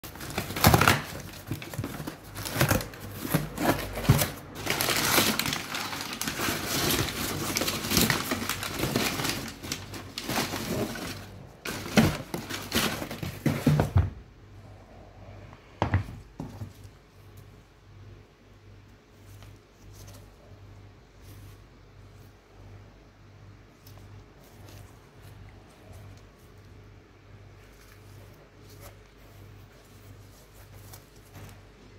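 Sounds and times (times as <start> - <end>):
packing paper rustling and crinkling: 0.0 - 14.1, 27.4 - 31.9
cardboard box tearing: 0.1 - 13.8.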